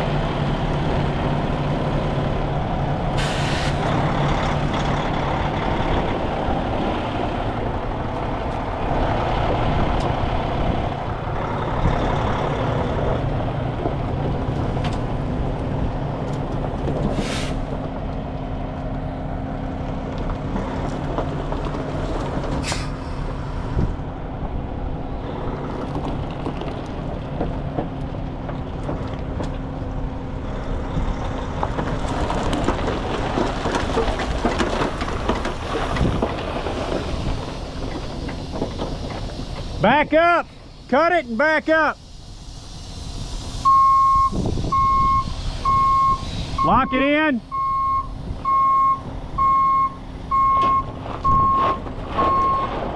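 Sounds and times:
truck diesel engine running: 0.0s - 52.9s
air hisses: 3.2s - 3.9s, 17.1s - 17.7s, 37.1s - 46.6s.

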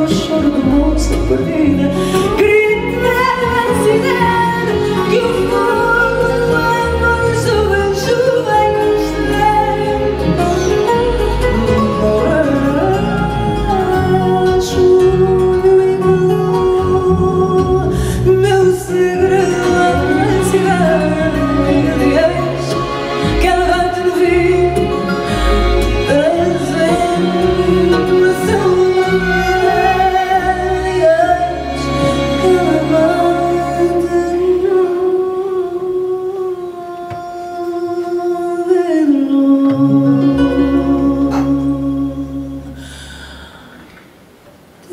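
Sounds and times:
woman singing slow melody: 0.0s - 43.8s
guitars: 0.0s - 44.2s.

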